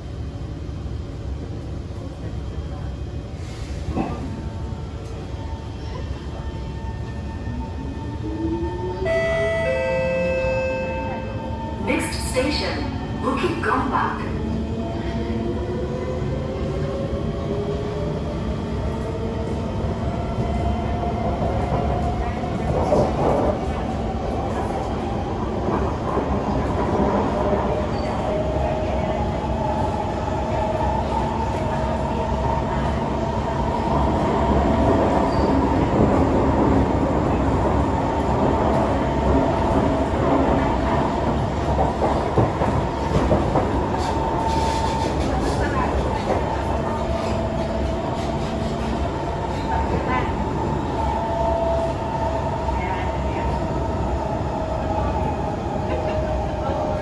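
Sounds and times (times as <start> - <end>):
steady train whine: 0.0 - 57.0
train wheels rumbling on rail: 11.1 - 57.0.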